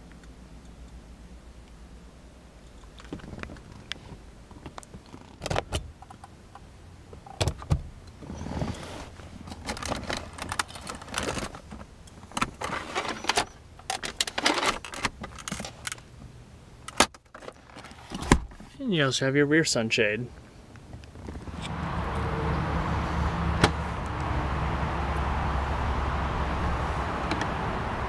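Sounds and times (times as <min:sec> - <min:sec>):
rustling and tapping: 0:02.7 - 0:06.3.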